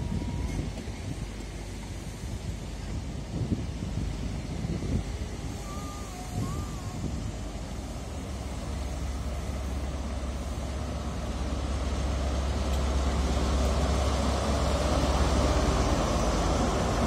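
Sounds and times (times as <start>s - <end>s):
train coaches rumbling: 0.0s - 17.0s
diesel engine drone: 7.2s - 17.0s.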